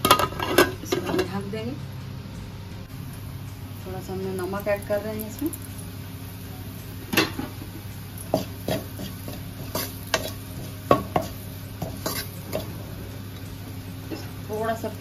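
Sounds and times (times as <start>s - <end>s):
steady low hum: 0.0s - 15.0s
spatula scraping metal pan: 8.4s - 12.7s.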